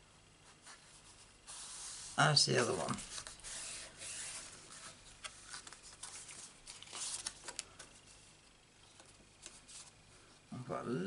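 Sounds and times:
hand rubbing card on paper mat: 0:00.4 - 0:08.4, 0:09.4 - 0:10.0.

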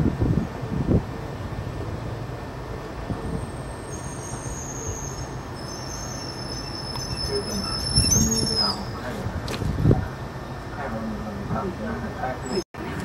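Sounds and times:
high-pitched squealing tones: 0:03.5 - 0:09.0.

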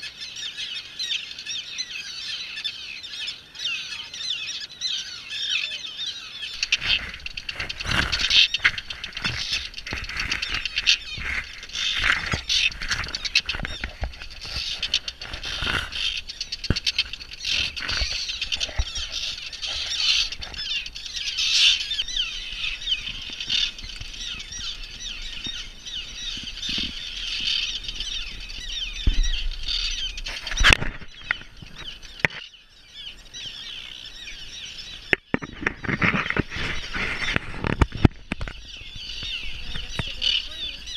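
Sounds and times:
terns calling: 0:00.0 - 0:40.9.

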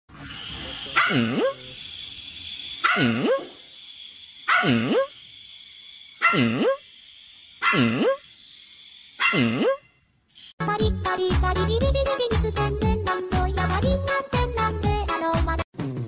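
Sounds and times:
dog barking: 0:01.0 - 0:01.6, 0:02.8 - 0:03.5, 0:04.5 - 0:05.1, 0:06.2 - 0:06.8, 0:07.6 - 0:08.2, 0:09.2 - 0:09.8.

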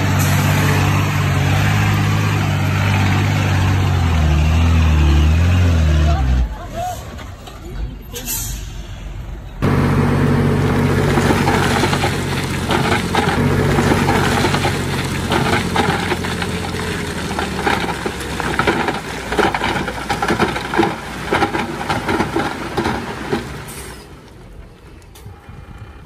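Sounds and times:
bulldozer diesel engine: 0:00.0 - 0:26.0
soil crunching and clattering: 0:09.6 - 0:25.3.

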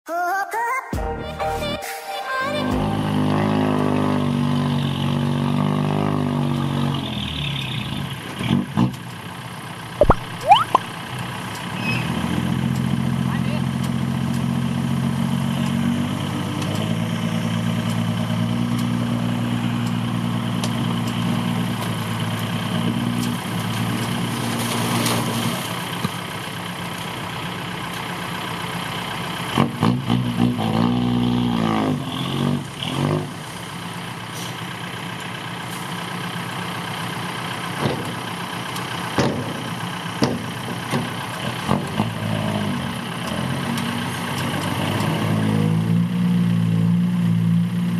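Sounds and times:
truck engine revving: 0:02.8 - 0:26.0, 0:28.6 - 0:34.7, 0:36.2 - 0:47.9.

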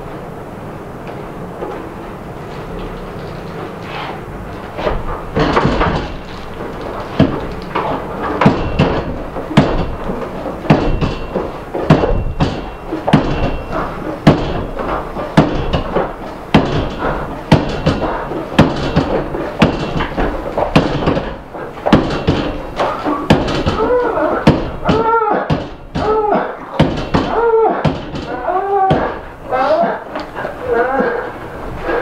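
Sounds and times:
heavy percussive hits: 0:07.1 - 0:26.2.

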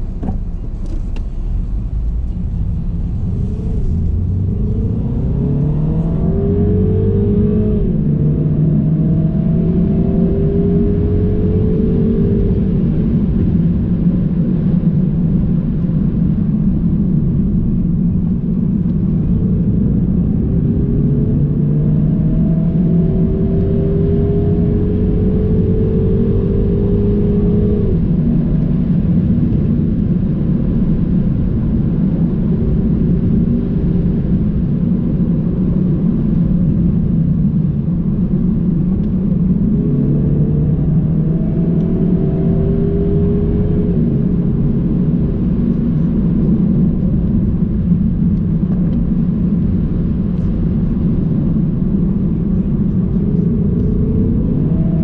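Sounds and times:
car engine accelerating: 0:00.0 - 0:55.0.

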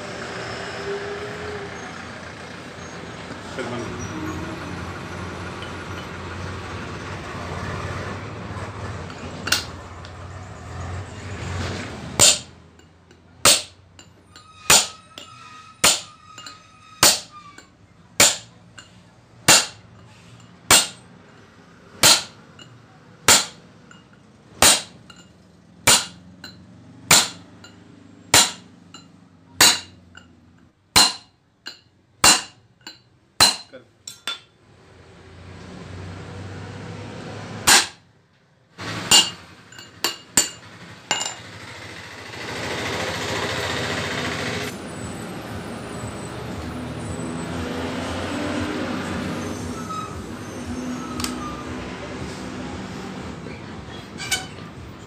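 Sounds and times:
hammer striking metal: 0:09.1 - 0:09.8, 0:12.2 - 0:20.1, 0:20.7 - 0:21.1, 0:22.0 - 0:30.3, 0:30.9 - 0:34.6, 0:37.6 - 0:38.0, 0:38.9 - 0:41.5.

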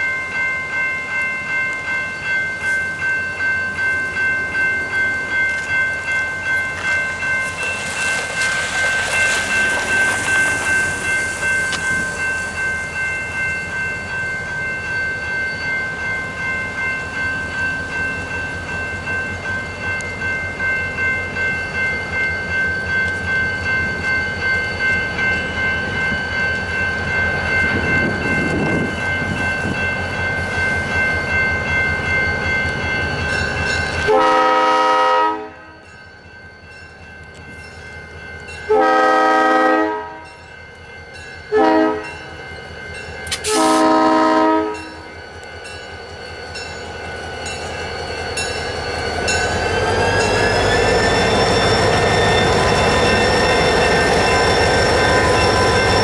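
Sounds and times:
locomotive air horn: 0:34.1 - 0:35.6, 0:38.7 - 0:40.2, 0:41.5 - 0:42.1, 0:43.3 - 0:45.0
diesel locomotive engine running: 0:43.0 - 0:56.0.

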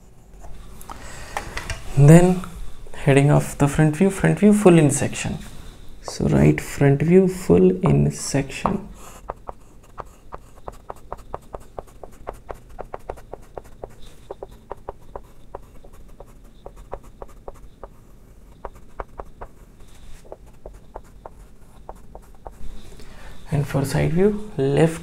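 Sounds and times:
chalk tapping on chalkboard: 0:08.6 - 0:22.7.

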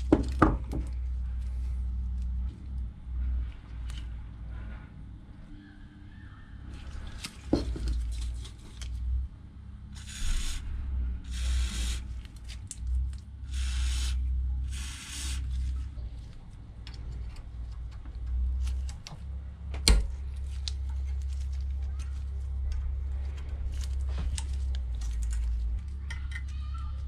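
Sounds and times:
aerosol spray hissing: 0:11.3 - 0:12.1, 0:13.5 - 0:15.5.

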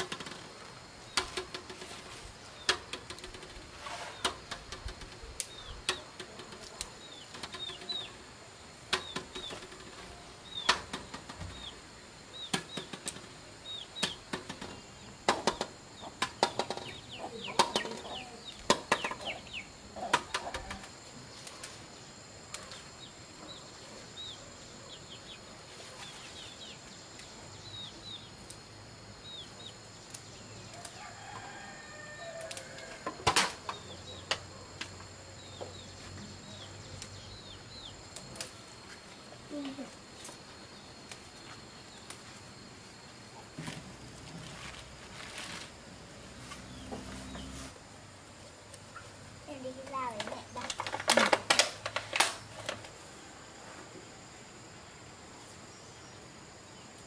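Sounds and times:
birds chirping: 0:01.0 - 0:28.5.

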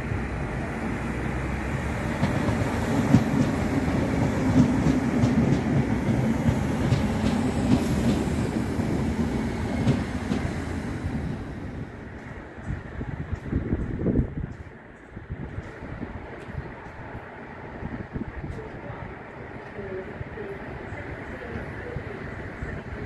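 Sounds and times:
train wheels rumbling on rails: 0:00.0 - 0:23.0
clickety-clack of wheels: 0:02.2 - 0:08.4.

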